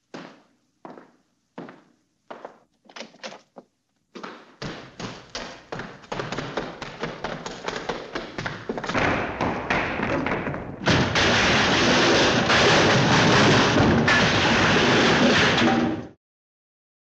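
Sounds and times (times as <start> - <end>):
cartoon taps and thuds: 4.2 - 14.5.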